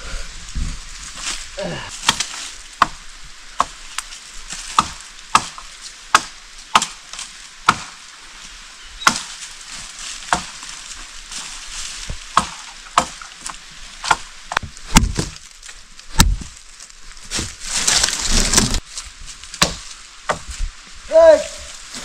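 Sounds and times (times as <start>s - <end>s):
blade chopping wood: 2.0s - 3.0s, 3.6s - 8.0s, 9.0s - 10.8s, 12.1s - 15.5s, 16.1s - 16.5s, 19.6s - 20.6s.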